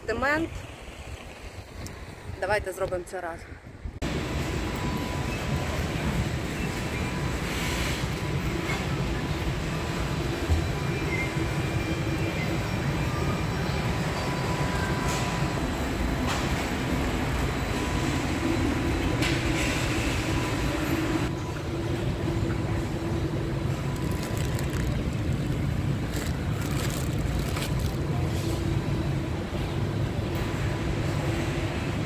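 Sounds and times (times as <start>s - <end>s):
faint constant hum: 0.0s - 32.0s
low warehouse background rumble: 14.2s - 32.0s
rustling handling noises: 23.8s - 28.5s.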